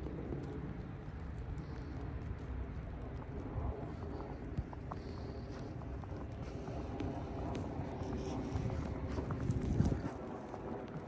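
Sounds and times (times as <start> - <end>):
wind rumbling on microphone: 0.0 - 11.0
footsteps crunching in snow: 3.7 - 11.0.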